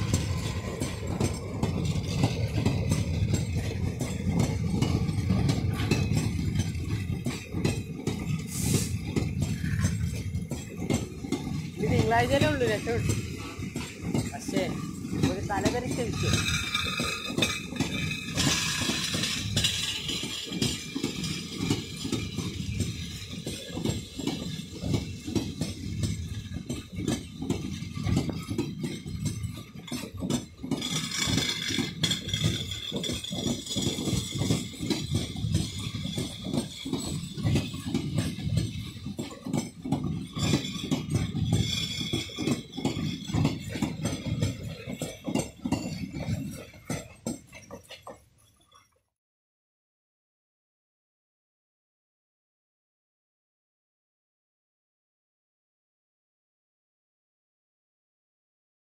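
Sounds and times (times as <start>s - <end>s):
low rumble on rails: 0.0s - 48.2s
train wheels clattering: 0.0s - 48.9s.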